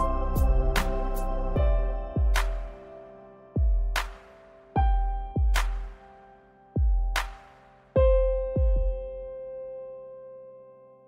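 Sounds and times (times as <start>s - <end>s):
deep bass hits: 0.0s - 2.6s
held keyboard chord: 0.0s - 4.0s
snare-like hit: 2.4s - 2.9s, 4.0s - 4.7s, 5.6s - 6.2s, 7.2s - 8.0s.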